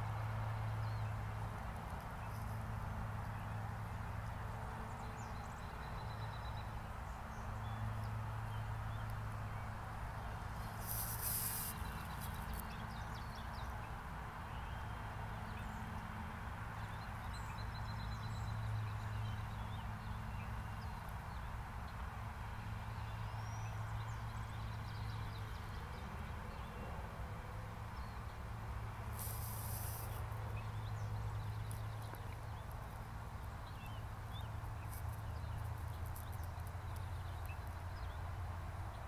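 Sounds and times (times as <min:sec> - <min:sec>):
brief hiss: 0:10.6 - 0:12.5, 0:29.1 - 0:30.2.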